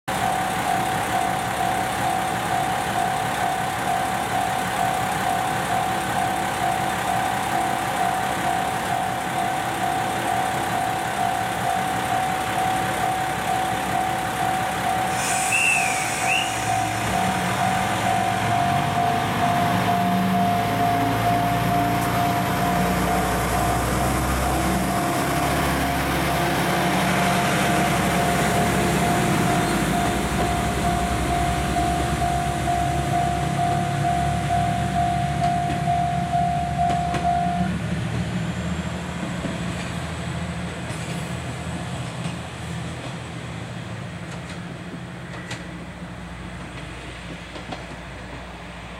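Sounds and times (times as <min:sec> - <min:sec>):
level crossing warning bell: 0:00.1 - 0:15.2, 0:16.6 - 0:37.8
diesel railcar engine revving: 0:00.1 - 0:48.9
air hiss: 0:15.1 - 0:17.0.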